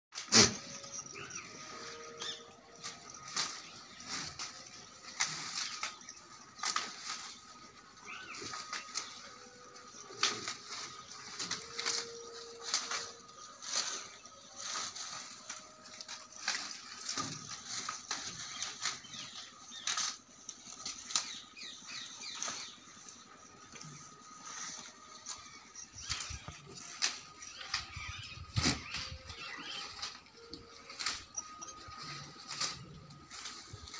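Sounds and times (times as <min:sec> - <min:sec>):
goats chewing: 0:00.2 - 0:33.9
leaves and twigs rustling and snapping: 0:02.9 - 0:07.5, 0:10.1 - 0:21.5, 0:26.0 - 0:33.9.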